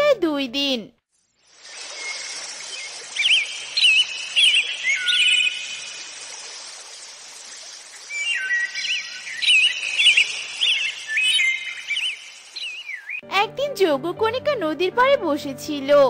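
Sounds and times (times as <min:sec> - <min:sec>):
steady outdoor hiss: 0:01.2 - 0:13.2
birds chirping: 0:01.5 - 0:13.2.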